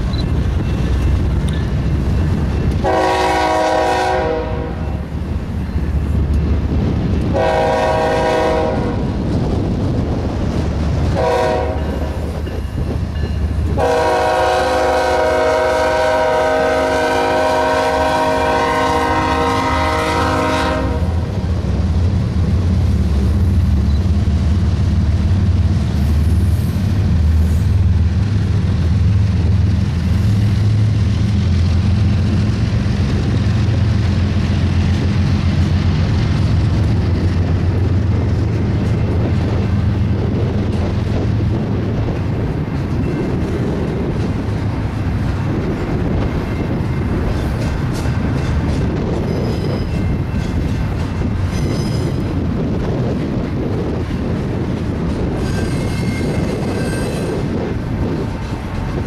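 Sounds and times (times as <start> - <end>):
train rumbling past: 0.0 - 59.0
locomotive air horn blasts: 2.8 - 4.9, 7.3 - 9.0, 11.2 - 12.0, 13.8 - 21.3.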